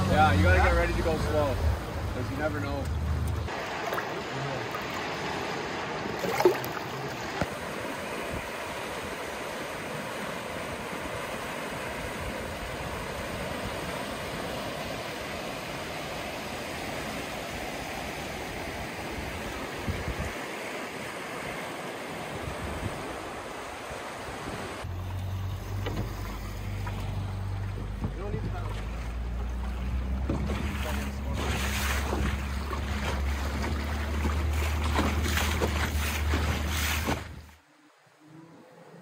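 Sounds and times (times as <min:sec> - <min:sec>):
river rushing through rapids: 0:03.5 - 0:24.9.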